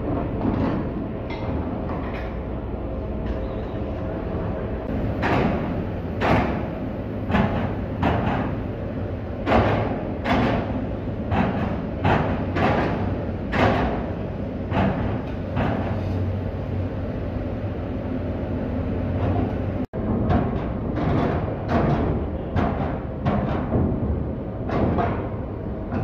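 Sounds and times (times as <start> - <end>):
tyres clanking over steel ramp: 4.9 - 16.3, 19.1 - 26.0.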